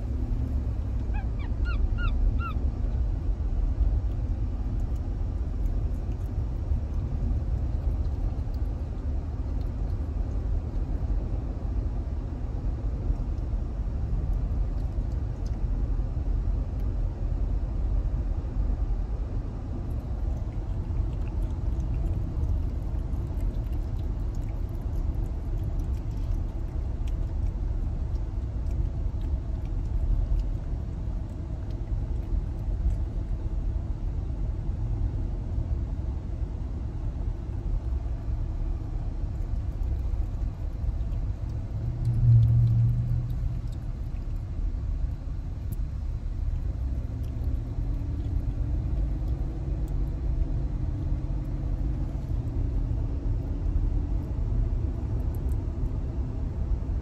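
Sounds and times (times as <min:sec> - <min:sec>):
car interior rumble: 0:00.0 - 0:57.0.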